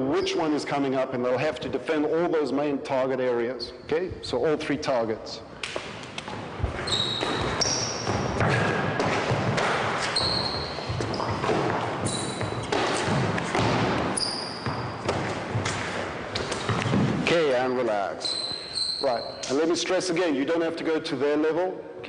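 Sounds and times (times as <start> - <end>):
trainers squeaking on wooden floor: 6.6 - 9.3, 10.0 - 15.7, 16.3 - 19.6.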